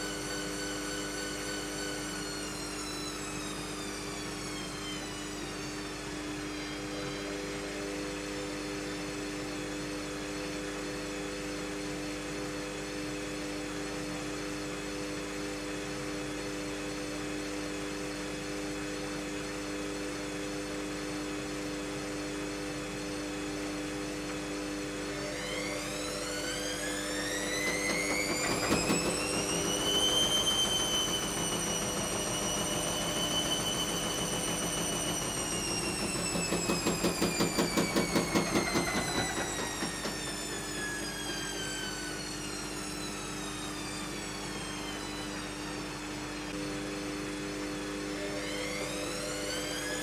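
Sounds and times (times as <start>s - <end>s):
motor whine: 0.0s - 50.0s
washing machine drum spinning: 24.0s - 44.7s.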